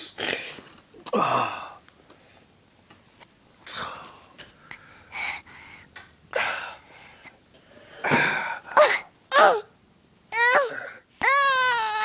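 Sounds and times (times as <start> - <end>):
toddler squealing: 10.4 - 12.0.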